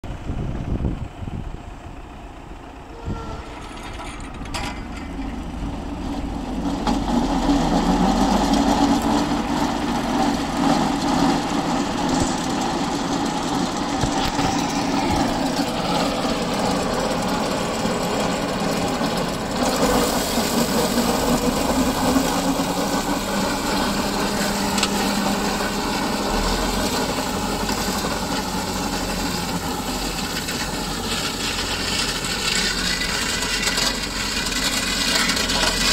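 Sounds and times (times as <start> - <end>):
tractor engine running: 0.0 - 35.9
mower discs hissing through grass: 8.1 - 35.9.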